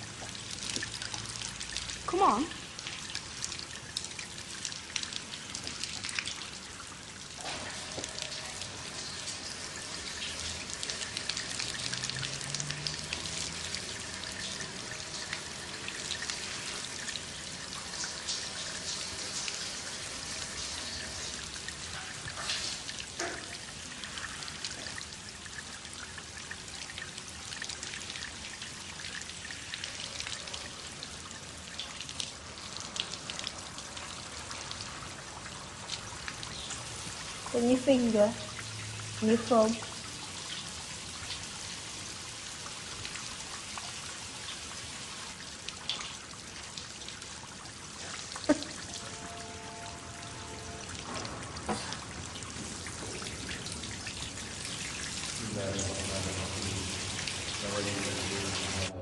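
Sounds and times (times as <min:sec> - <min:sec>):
tap water splashing over hands: 0:00.0 - 0:06.7, 0:10.1 - 0:19.8, 0:20.6 - 0:25.8, 0:47.9 - 0:58.9.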